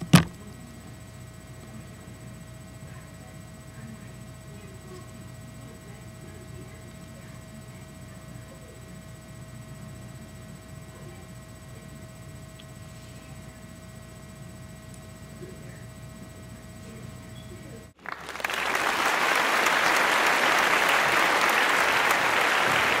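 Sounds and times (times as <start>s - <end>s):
faint steady hum: 0.0s - 23.0s
crowd applause: 18.0s - 23.0s.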